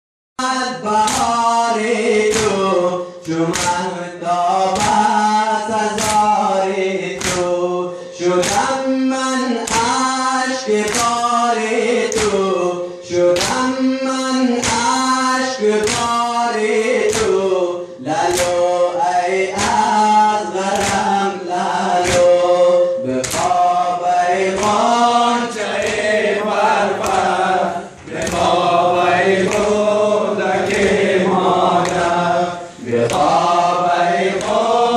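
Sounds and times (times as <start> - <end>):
men chanting in unison: 0.4 - 34.9
hands slapping chests: 1.0 - 1.4, 2.2 - 3.9, 4.8 - 5.1, 5.9 - 6.4, 7.1 - 7.6, 8.4 - 8.8, 9.6 - 10.1, 10.8 - 11.3, 12.0 - 12.5, 13.3 - 13.7, 14.5 - 15.0, 15.8 - 16.4, 17.0 - 17.4, 18.2 - 18.7, 19.5 - 20.0, 20.7 - 21.2, 21.9 - 22.6, 23.2 - 23.8, 24.4 - 34.9.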